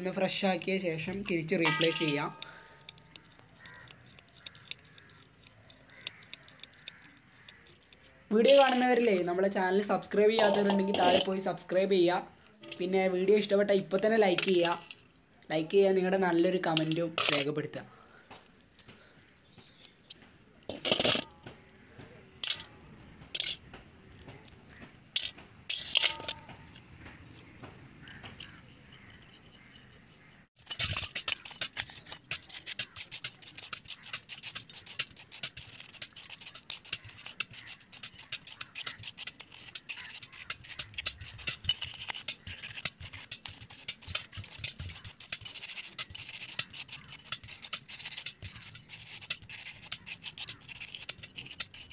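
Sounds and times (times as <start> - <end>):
metal parts clicking and knocking: 0.1 - 9.3, 10.3 - 11.4, 14.3 - 15.1, 16.7 - 17.6, 18.8 - 21.5, 22.4 - 51.9
plastic brush scrubbing metal: 10.4 - 11.4, 28.2 - 51.9.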